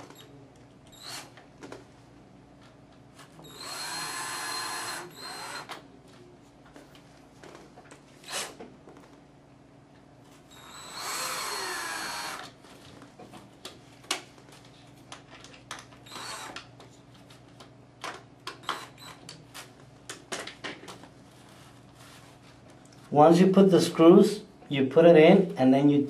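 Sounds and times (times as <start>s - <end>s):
cordless drill whirring: 0.9s - 1.4s, 3.4s - 5.8s, 10.5s - 12.6s, 16.0s - 16.6s, 18.6s - 19.2s.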